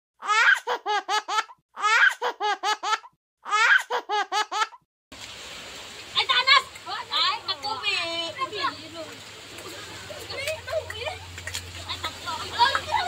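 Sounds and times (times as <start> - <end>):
child laughing: 0.2 - 4.8, 9.6 - 13.0
outdoor background hiss: 5.2 - 13.0.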